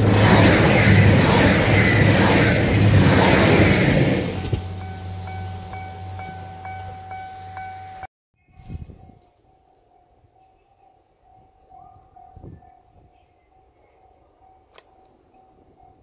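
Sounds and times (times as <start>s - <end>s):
diesel train passing: 0.0s - 8.1s.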